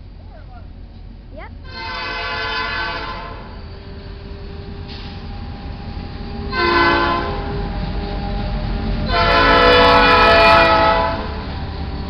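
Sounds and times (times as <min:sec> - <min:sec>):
diesel locomotives rumbling: 0:00.0 - 0:12.0
locomotive air horn blasts: 0:01.7 - 0:03.6, 0:06.5 - 0:07.7, 0:09.1 - 0:11.4.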